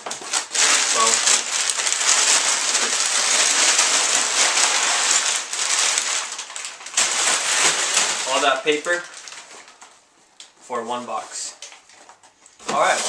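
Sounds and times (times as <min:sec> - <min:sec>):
packing paper crinkling: 0:00.0 - 0:10.5, 0:11.1 - 0:13.0.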